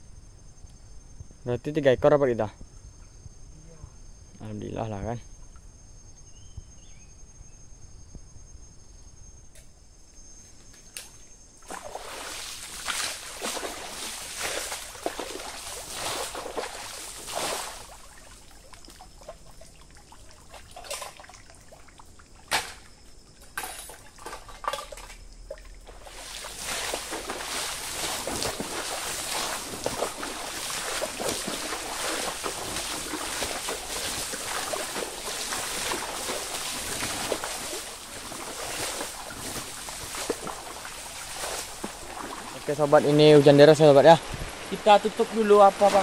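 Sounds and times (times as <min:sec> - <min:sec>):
insects chirping: 0:00.0 - 0:46.0
water splashing and pouring: 0:11.6 - 0:46.0.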